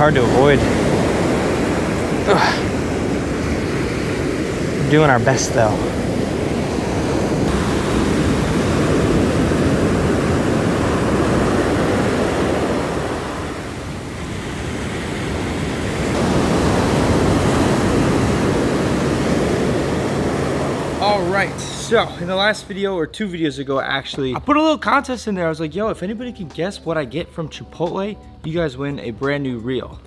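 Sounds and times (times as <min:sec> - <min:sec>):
wind on microphone: 0:00.0 - 0:21.6
ocean surf breaking: 0:00.0 - 0:23.0.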